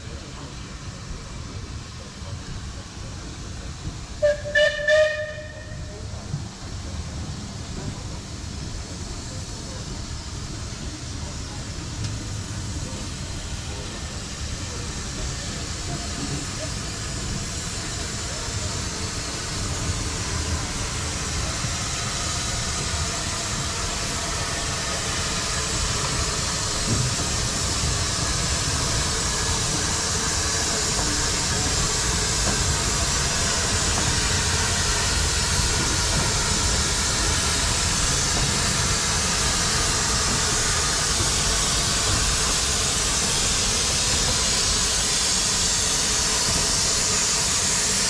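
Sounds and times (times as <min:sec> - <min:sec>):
steam hissing: 0:00.0 - 0:48.0
steam locomotive whistle: 0:04.2 - 0:05.9.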